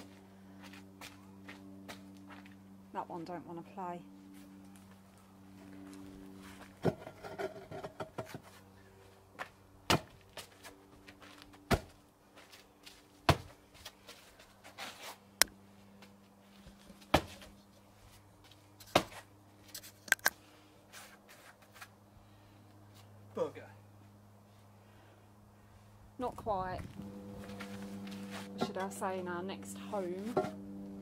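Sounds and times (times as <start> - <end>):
concrete slab knocks and scuffs: 16.9 - 17.5, 18.9 - 19.3.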